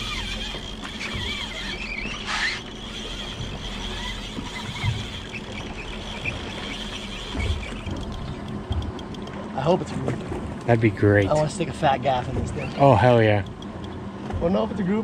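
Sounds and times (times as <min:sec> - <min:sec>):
fishing reels whining: 0:00.0 - 0:09.4
low hum: 0:00.0 - 0:14.3.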